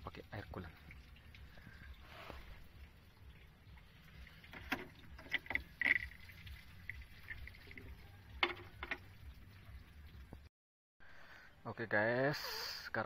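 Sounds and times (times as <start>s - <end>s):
handling clicks and knocks: 8.4s - 9.1s.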